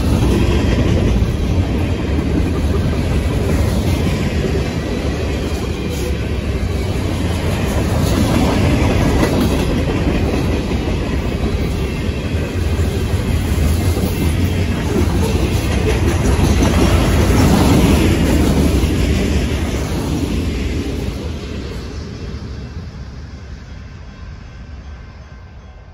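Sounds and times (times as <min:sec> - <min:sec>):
wheels clattering on rails: 0:00.0 - 0:22.0
freight train rumbling past: 0:00.0 - 0:25.9.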